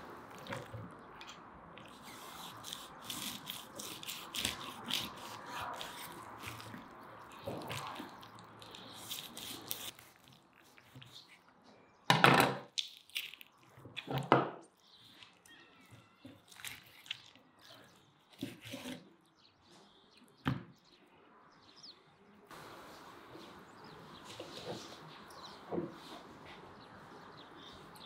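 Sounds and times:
knife cutting fish scrapes: 1.9s - 11.4s, 18.4s - 19.1s
faint bird chirps: 14.8s - 18.4s.

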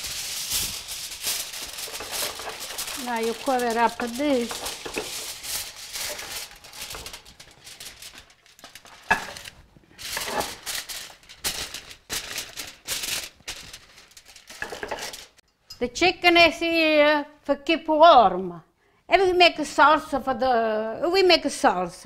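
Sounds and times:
aluminium foil crinkling: 0.0s - 15.4s.

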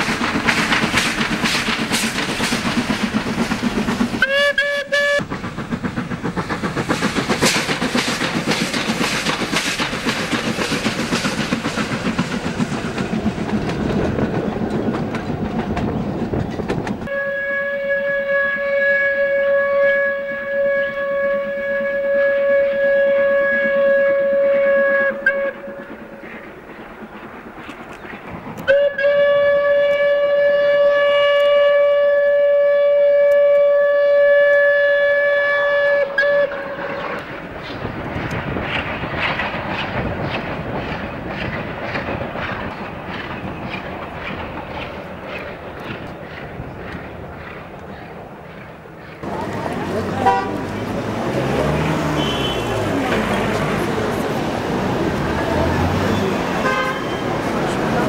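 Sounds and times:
steam locomotive chuffing: 0.0s - 58.0s
steam locomotive whistle: 4.2s - 5.3s, 17.1s - 26.2s, 28.6s - 37.3s, 50.2s - 53.9s, 55.8s - 58.0s.

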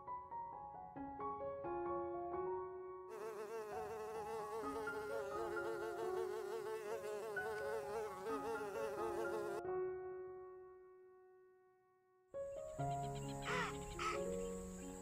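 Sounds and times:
honeybees buzzing: 3.1s - 9.6s
soft held piano notes: 12.4s - 15.0s.

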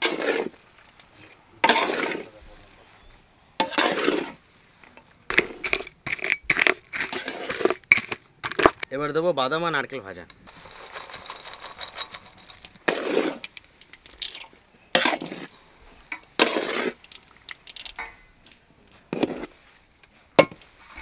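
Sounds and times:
spatula scraping pan: 0.0s - 0.6s, 1.6s - 2.4s, 3.6s - 8.6s, 11.8s - 17.2s
nuts pattering into metal pan: 10.5s - 15.2s, 16.1s - 18.3s.

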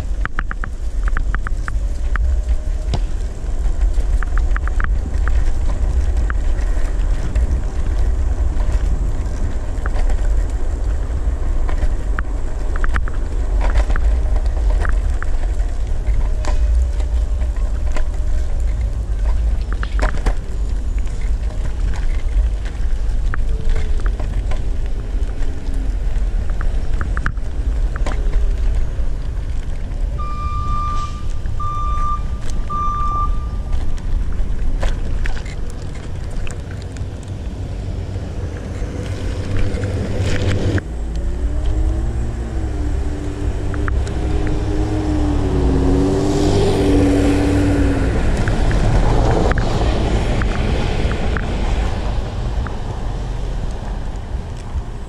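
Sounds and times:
wheels rolling on road: 0.0s - 55.0s
wind on microphone: 0.0s - 55.0s
short high beeps: 30.2s - 33.7s.

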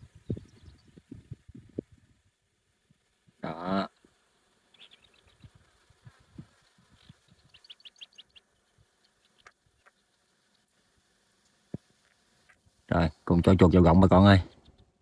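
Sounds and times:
rats squeaking: 3.9s - 12.7s, 14.4s - 15.0s.

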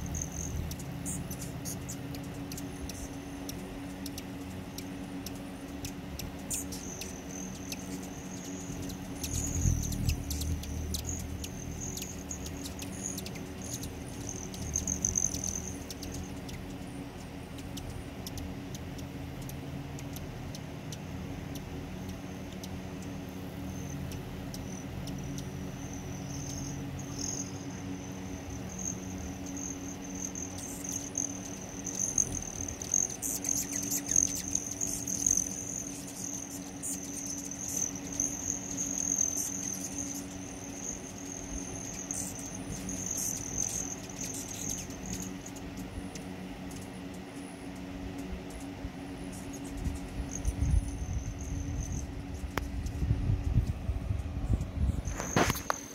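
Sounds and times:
clicks and flutters: 0.0s - 23.2s, 55.0s - 55.9s
hummingbird wings trilling: 0.0s - 55.9s.

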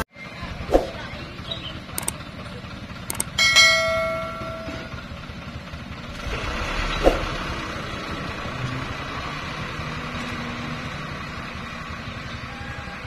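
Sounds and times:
dump truck driving away: 0.0s - 13.0s.

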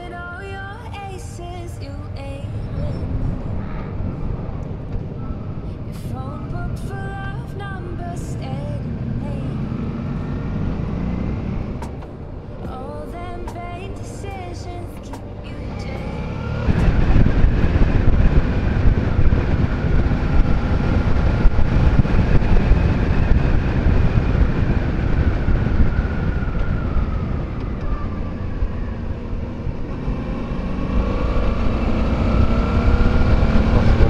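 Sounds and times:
motorcycle engine: 2.6s - 13.0s, 15.1s - 34.0s
wind rush on microphone: 15.3s - 34.0s.

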